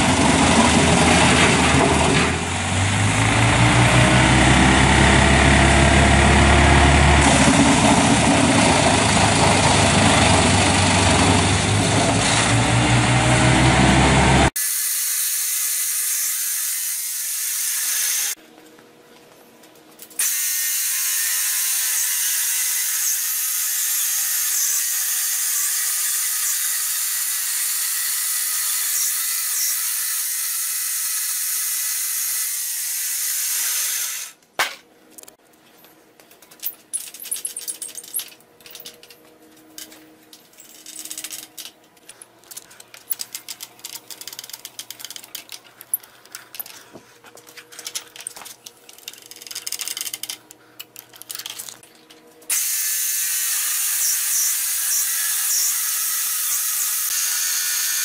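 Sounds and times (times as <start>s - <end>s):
band saw cutting log: 0.0s - 18.4s, 20.2s - 34.4s, 52.5s - 58.0s.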